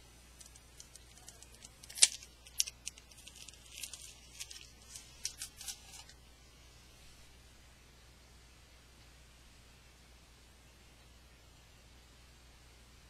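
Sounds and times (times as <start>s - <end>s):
sticky tape peeling: 0.4s - 6.2s.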